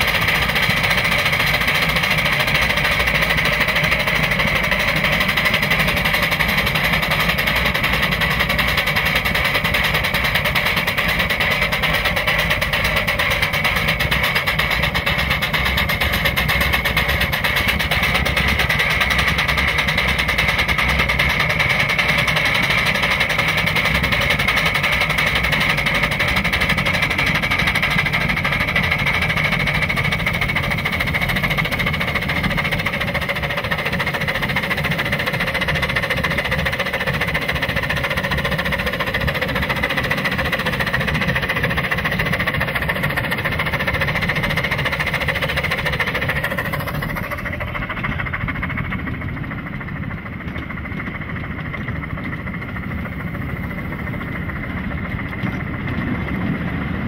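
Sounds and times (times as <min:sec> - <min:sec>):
steam locomotive running: 0:00.0 - 0:57.0.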